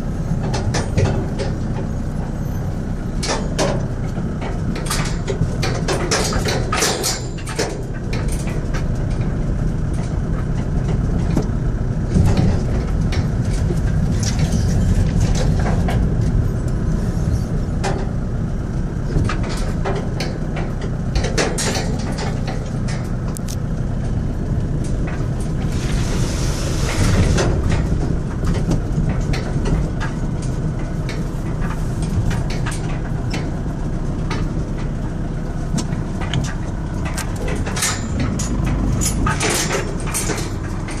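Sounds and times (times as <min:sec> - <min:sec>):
engine and road rumble: 0:00.0 - 0:41.0
car knocks and rattles: 0:00.4 - 0:01.9, 0:03.2 - 0:16.8, 0:35.7 - 0:41.0.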